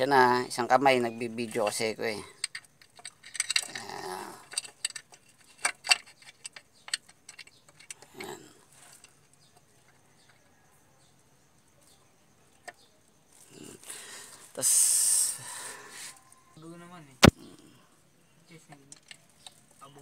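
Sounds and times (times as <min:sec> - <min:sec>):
metallic clicks and knocks: 0:01.4 - 0:10.5, 0:18.7 - 0:19.6.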